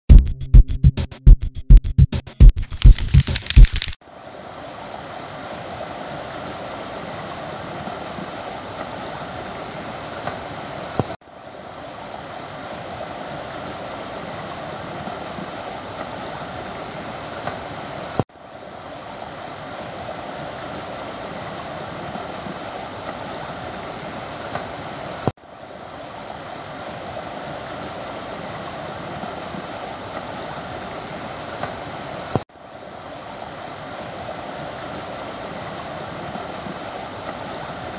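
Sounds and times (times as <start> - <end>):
sharp click: 2.2 - 4.0.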